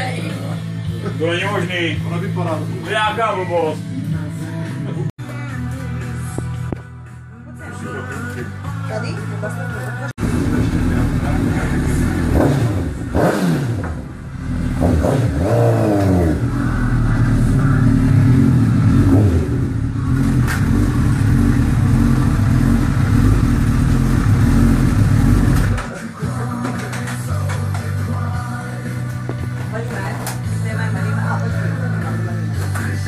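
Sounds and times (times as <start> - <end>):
motorcycle engine revving: 10.2 - 26.0.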